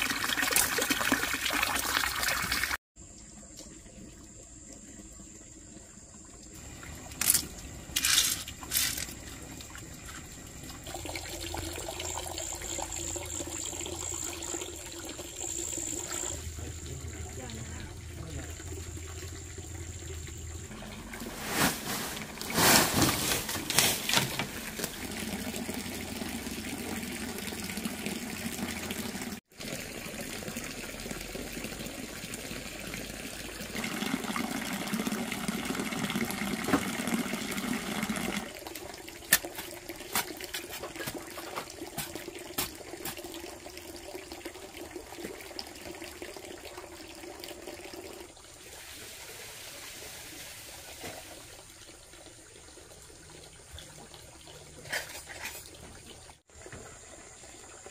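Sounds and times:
water trickling into pond: 0.0 - 57.9.

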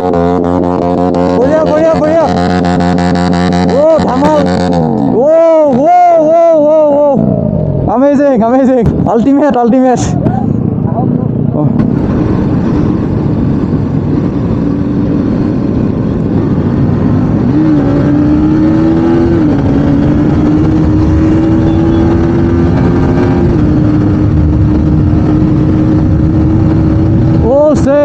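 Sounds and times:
motorcycle engine pulling hard: 0.0 - 5.8, 11.9 - 28.0
wind rush on microphone: 0.0 - 28.0.

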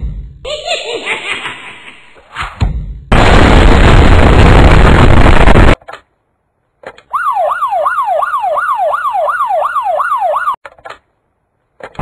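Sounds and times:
siren tone sweeping up and down: 7.1 - 10.6.

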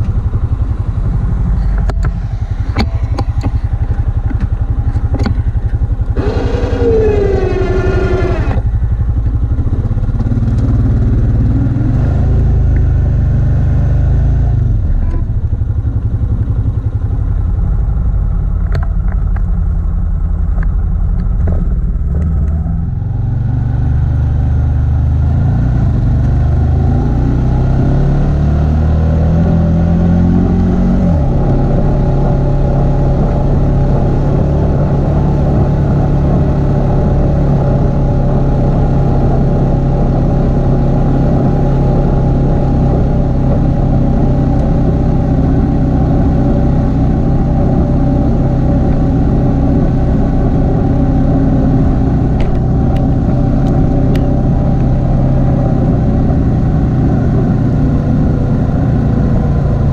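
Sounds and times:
atv engine running: 0.0 - 59.9
clatter: 18.4 - 22.9.

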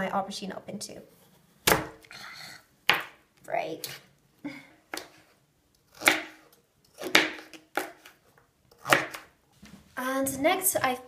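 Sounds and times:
knife chopping on plastic board: 1.6 - 2.0, 5.9 - 8.2, 8.8 - 9.3.

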